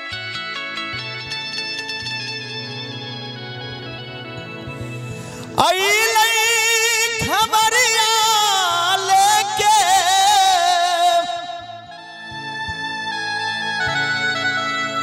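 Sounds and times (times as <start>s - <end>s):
keyboard organ chords: 0.0s - 15.0s
man singing with vibrato: 5.1s - 15.0s.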